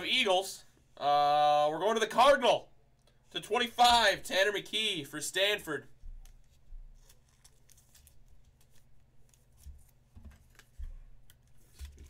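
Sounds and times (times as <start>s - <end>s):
cards and plastic holders rustling: 5.9s - 12.0s.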